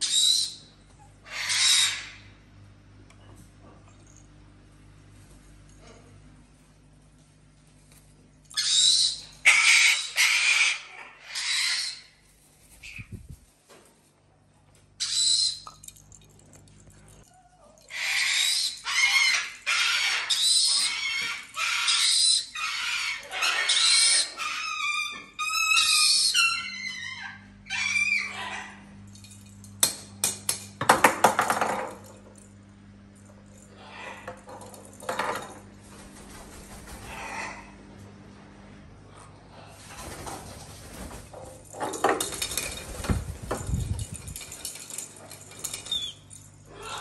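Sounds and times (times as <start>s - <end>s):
parrot screeching: 0.0s - 2.3s, 8.5s - 12.2s, 15.0s - 15.6s, 17.9s - 28.8s, 37.0s - 37.7s, 46.7s - 47.0s.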